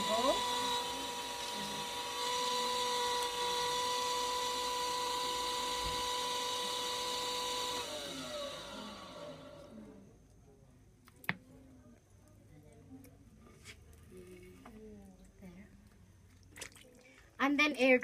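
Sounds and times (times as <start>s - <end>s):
potter's wheel motor whining: 0.0s - 10.0s.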